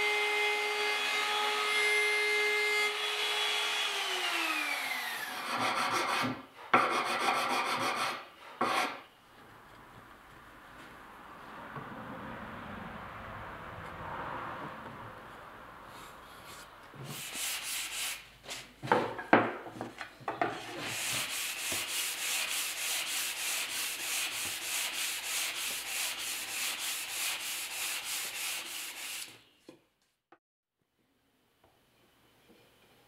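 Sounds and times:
sandpaper rasping on wood: 5.4s - 9.0s, 16.6s - 18.7s, 20.6s - 29.4s
scrapes and sharp knocks: 5.5s - 9.1s.

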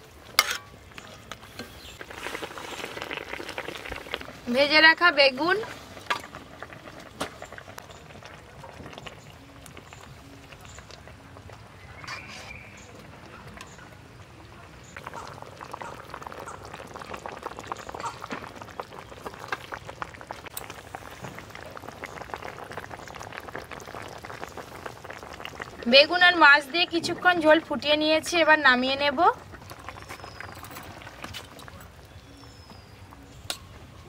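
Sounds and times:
curry bubbling and crackling: 0.0s - 34.0s.

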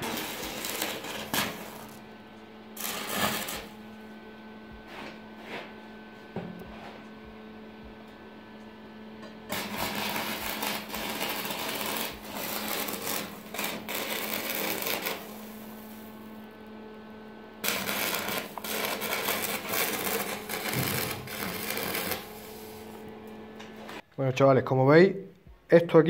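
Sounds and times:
arc welding crackle: 0.0s - 2.1s, 2.8s - 4.0s, 9.4s - 16.7s, 17.6s - 24.0s
welder humming: 0.0s - 24.0s.

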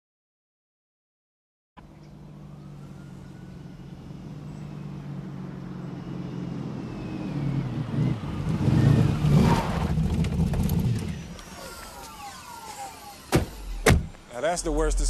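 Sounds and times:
city street traffic: 1.8s - 11.5s
car approaching and pulling up: 1.8s - 15.0s.

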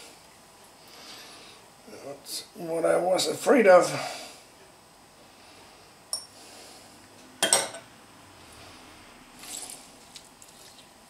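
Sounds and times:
clink against ceramic bowl: 6.1s - 6.3s
wet squish of lemon squeezed: 9.4s - 11.0s.

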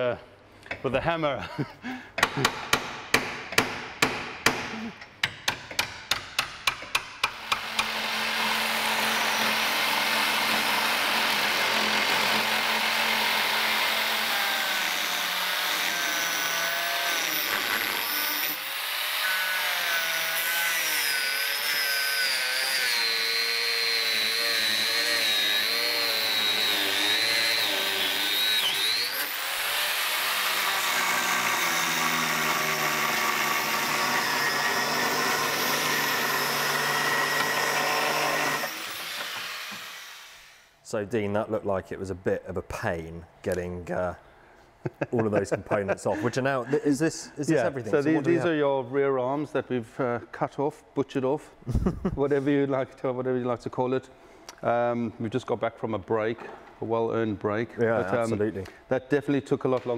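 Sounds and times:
angle grinder cutting bolts: 5.1s - 40.6s.

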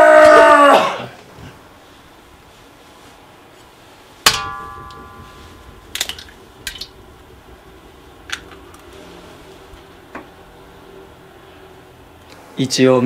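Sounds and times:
egg clanging on metal wok: 4.3s - 9.0s.

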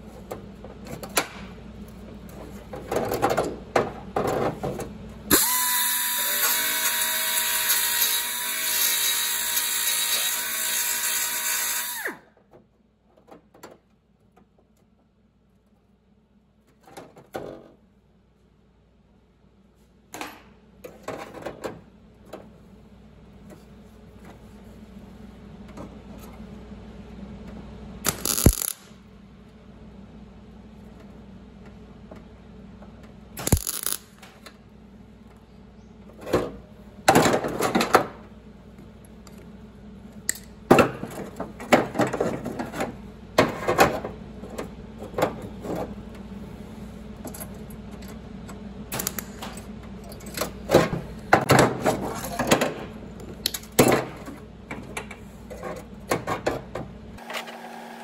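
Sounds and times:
steady low hum: 12.2s - 57.2s
welding crackle bursts: 28.0s - 29.0s, 33.4s - 34.2s.

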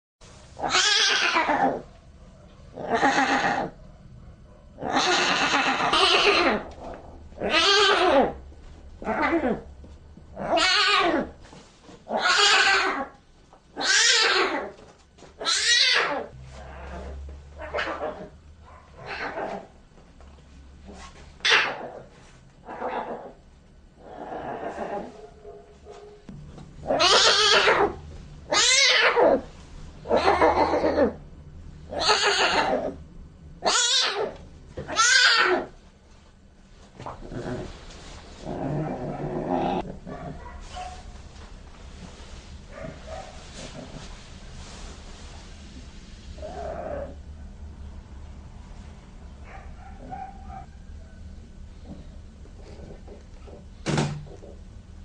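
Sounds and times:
lion cub mewling: 0.6s - 1.9s, 2.7s - 3.8s, 4.8s - 8.4s, 15.4s - 18.4s, 26.8s - 31.2s, 31.9s - 33.0s, 33.6s - 35.8s.

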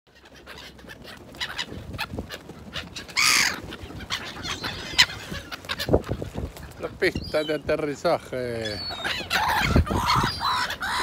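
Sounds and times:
gull call: 0.1s - 6.2s, 8.6s - 11.0s
gulls flapping wings: 0.1s - 11.0s.

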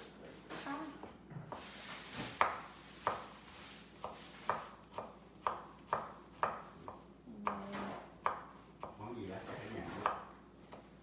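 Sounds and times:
knife chopping on wooden board: 1.5s - 3.4s, 4.0s - 10.9s.

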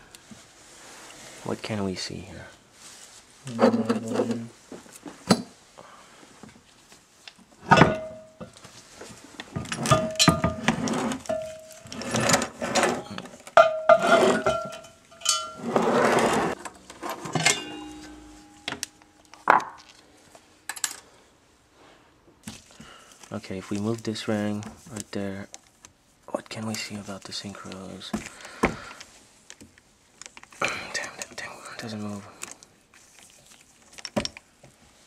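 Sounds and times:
metal scraping rattle: 9.6s - 18.8s.

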